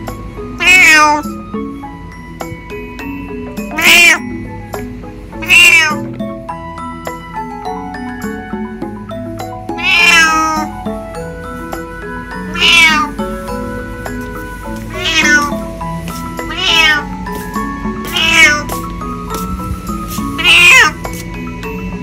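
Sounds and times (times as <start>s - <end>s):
background music: 0.0s - 22.0s
cat meowing: 0.6s - 1.4s, 3.6s - 4.3s, 5.4s - 6.1s, 9.8s - 10.8s, 12.3s - 13.3s, 14.8s - 15.7s, 16.4s - 17.3s, 18.0s - 18.8s, 20.2s - 21.2s.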